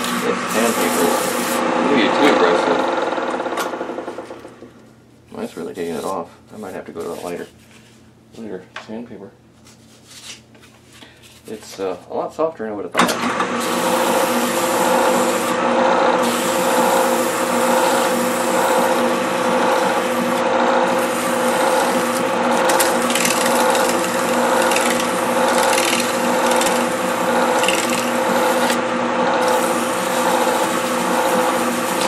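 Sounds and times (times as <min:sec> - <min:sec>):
lathe humming: 0:00.0 - 0:04.7, 0:13.1 - 0:32.0
sandpaper rasping: 0:00.5 - 0:01.6, 0:16.2 - 0:28.8, 0:29.4 - 0:32.0.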